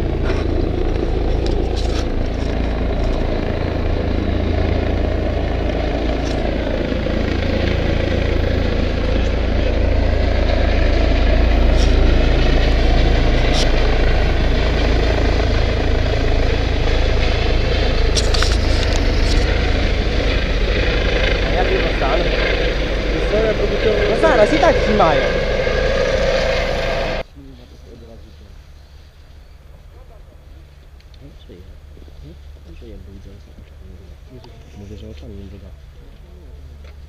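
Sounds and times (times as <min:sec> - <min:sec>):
helicopter landing: 0:00.0 - 0:27.3
road traffic rumble: 0:00.0 - 0:37.0.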